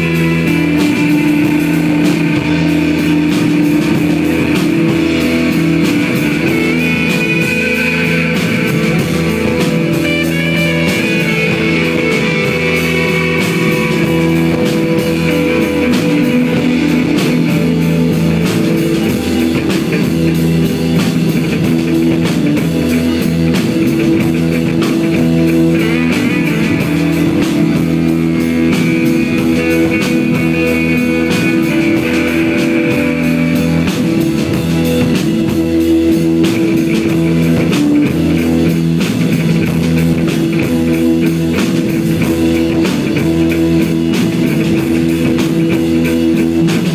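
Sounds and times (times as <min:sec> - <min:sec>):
driving drums: 0:00.0 - 0:46.9
electric guitar droning: 0:00.0 - 0:46.9.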